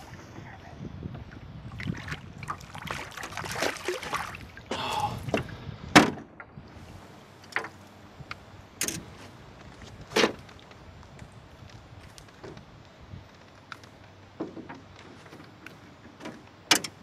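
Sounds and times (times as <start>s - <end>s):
fish splashing at the surface: 1.8s - 5.2s
knocks and thumps in a boat: 14.4s - 17.0s.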